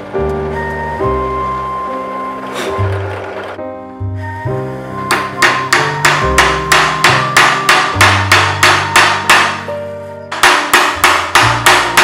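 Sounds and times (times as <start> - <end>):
background music: 0.0 - 12.0
hammer tapping nails into wood: 5.1 - 9.7, 10.3 - 12.0.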